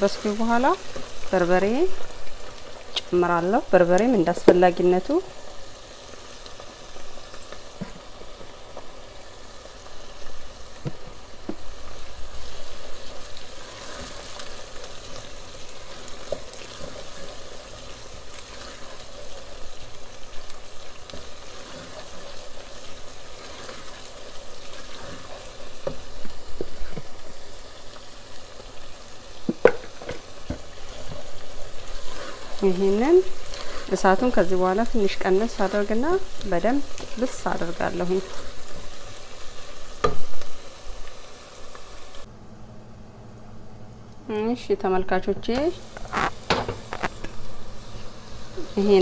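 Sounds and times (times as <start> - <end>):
onions sizzling in oil: 0.0 - 42.3, 44.3 - 49.0
wooden spoon knocking pot: 29.5 - 30.6.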